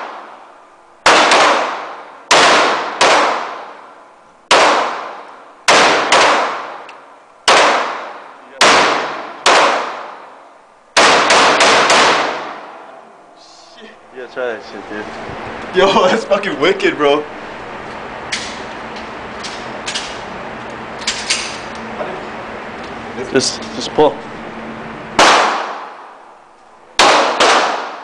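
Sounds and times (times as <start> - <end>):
rifle shots echoing indoors: 0.0 - 12.9, 25.1 - 26.4, 27.0 - 28.0.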